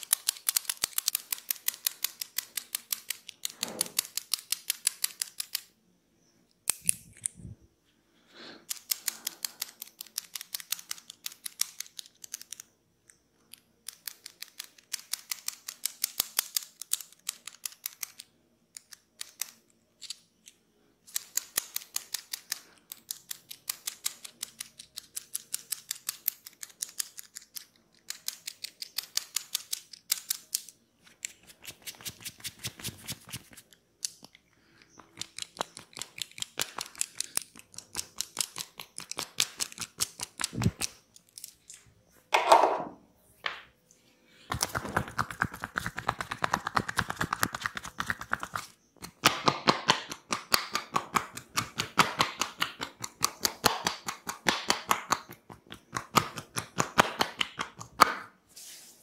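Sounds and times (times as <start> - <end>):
rapid crisp clicks: 0.0 - 5.7, 13.5 - 41.8.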